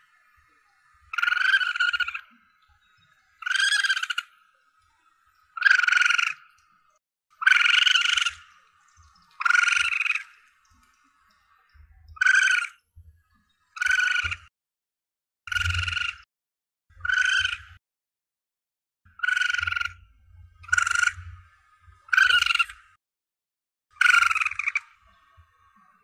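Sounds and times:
civet high cries: 0:01.1 - 0:02.4, 0:03.4 - 0:05.0, 0:05.6 - 0:06.5, 0:07.4 - 0:08.5, 0:09.3 - 0:10.4, 0:12.1 - 0:12.8, 0:20.6 - 0:21.4, 0:22.1 - 0:22.8, 0:24.0 - 0:25.5.

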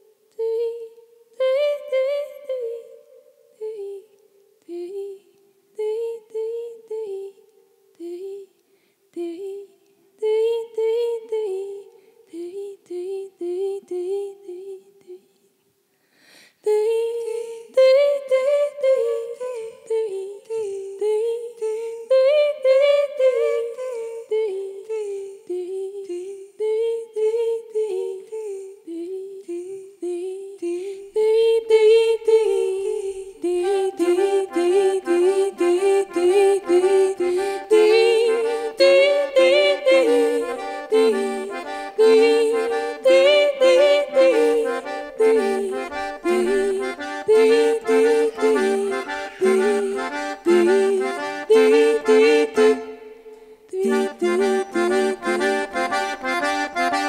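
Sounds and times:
button accordion folk tune: 0:33.5 - 0:53.1, 0:53.8 - 0:57.0.

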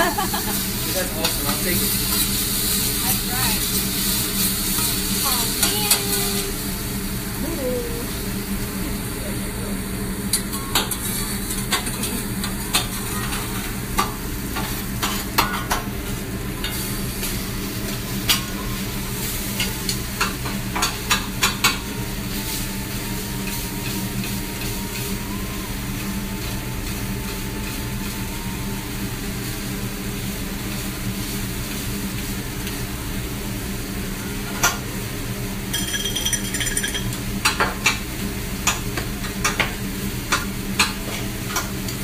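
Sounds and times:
food sizzling on a griddle: 0:00.0 - 0:42.0.

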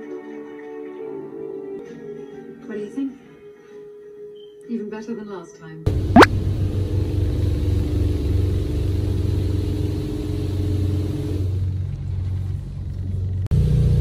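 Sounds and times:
car wash machinery rumbling: 0:05.9 - 0:14.0.

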